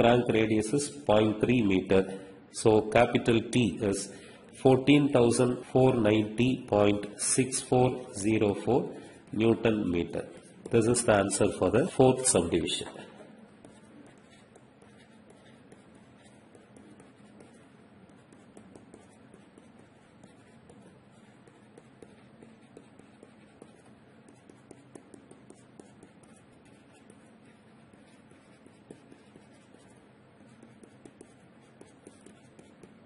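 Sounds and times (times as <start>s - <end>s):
steady low hiss: 0.0s - 33.0s
stylus tapping on a tablet: 18.2s - 19.8s.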